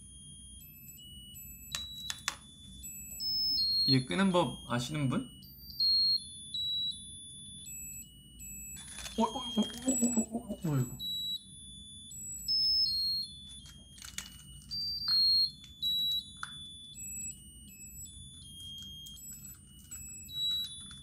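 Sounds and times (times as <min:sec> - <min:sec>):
tinny electronic beeping tune: 0:00.6 - 0:21.0
plastic petals clicking: 0:01.7 - 0:02.4.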